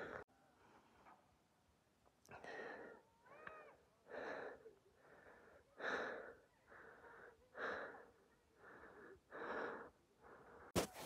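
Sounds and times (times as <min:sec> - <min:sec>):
person breathing hard: 0:00.0 - 0:00.2, 0:02.3 - 0:03.0, 0:04.0 - 0:10.9.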